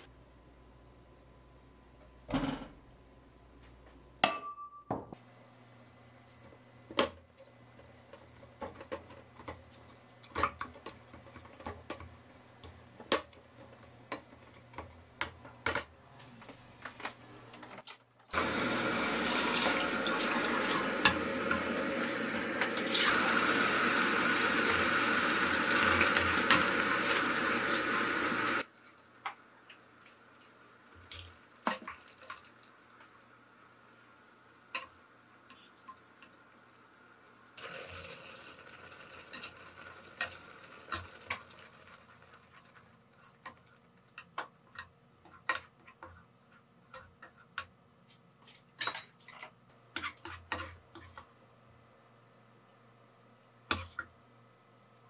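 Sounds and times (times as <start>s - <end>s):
water pouring into a pot: 18.4s - 21.1s, 37.6s - 42.9s.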